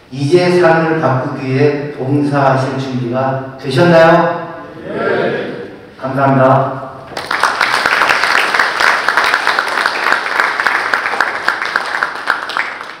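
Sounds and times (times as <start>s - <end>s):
audience applauding: 7.1s - 13.0s.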